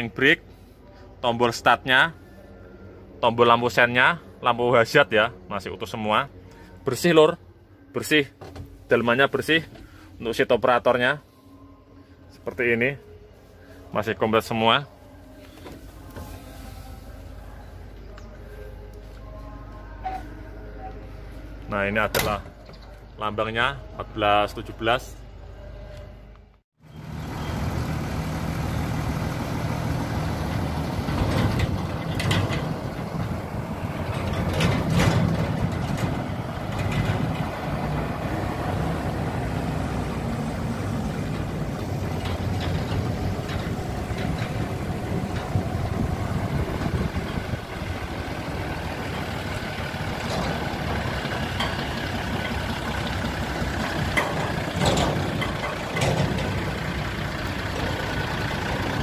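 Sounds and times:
diesel truck engine running: 0:12.6 - 0:59.0.

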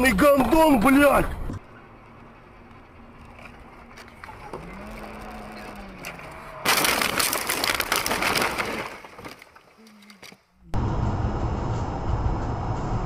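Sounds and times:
car road noise: 0:00.0 - 0:08.5, 0:10.6 - 0:13.0
loud vehicle crash: 0:05.4 - 0:09.6.

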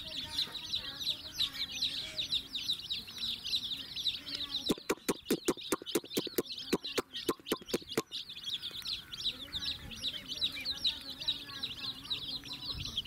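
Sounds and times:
chicks peeping: 0:00.0 - 0:13.0
rapid sharp clicks: 0:04.7 - 0:08.1.

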